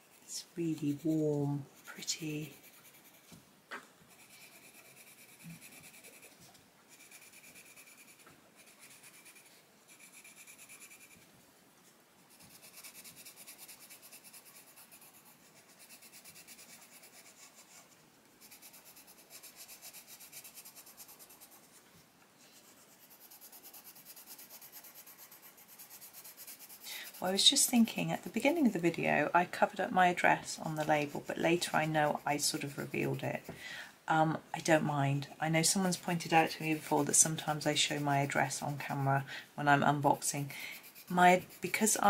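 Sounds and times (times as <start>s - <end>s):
pencil scratching on paper: 0.0s - 3.3s, 4.1s - 11.2s, 12.2s - 21.8s, 22.5s - 33.5s, 34.6s - 42.0s.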